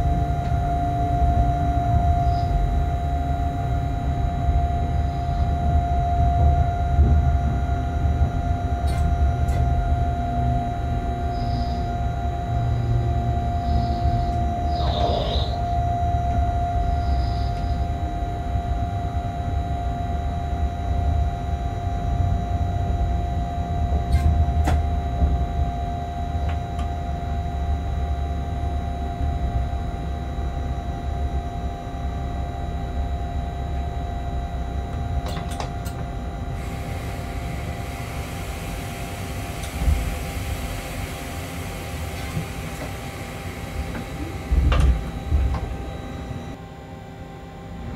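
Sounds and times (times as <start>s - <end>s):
train rumble: 0.0s - 18.6s, 23.9s - 26.9s, 35.0s - 46.6s
constant hum: 0.0s - 47.9s.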